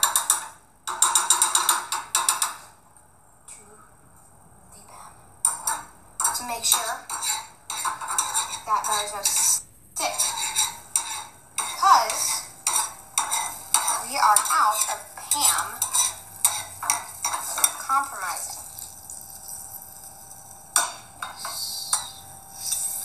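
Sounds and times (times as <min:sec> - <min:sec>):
egg sizzling: 0:05.5 - 0:23.0
metal tongs scraping a frying pan: 0:05.5 - 0:23.0.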